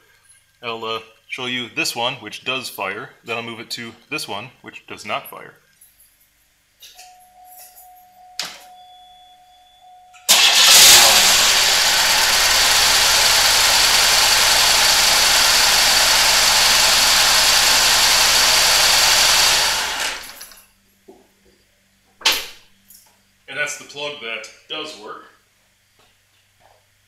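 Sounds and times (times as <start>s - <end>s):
car engine idling rough: 10.3s - 20.4s.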